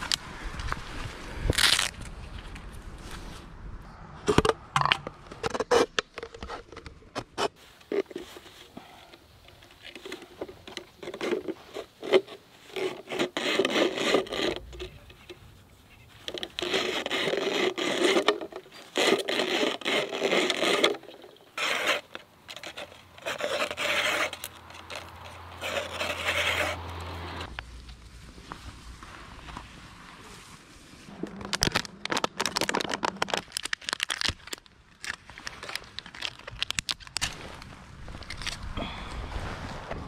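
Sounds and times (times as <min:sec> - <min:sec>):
plastic bottle scraping against blade: 0:04.3 - 0:08.7, 0:09.7 - 0:15.4, 0:16.2 - 0:27.5.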